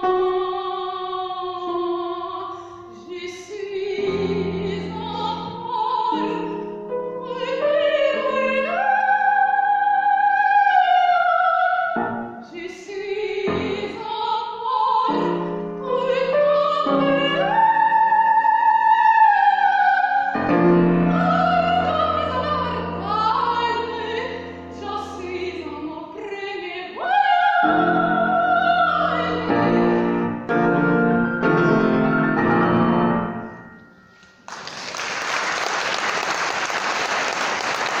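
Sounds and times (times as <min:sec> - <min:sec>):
operatic soprano singing: 0:00.0 - 0:30.6
piano accompaniment: 0:00.0 - 0:36.6
audience applause: 0:34.5 - 0:38.0.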